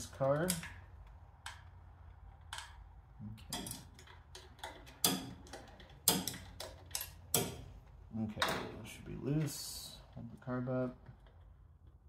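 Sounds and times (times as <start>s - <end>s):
wrench clicking on nuts: 3.5s - 7.6s.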